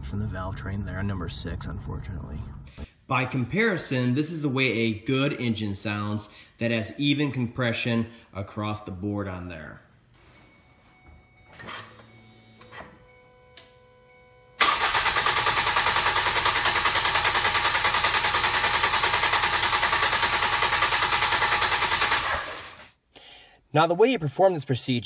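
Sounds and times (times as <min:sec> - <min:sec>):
starter motor cranking engine: 0:14.6 - 0:22.8.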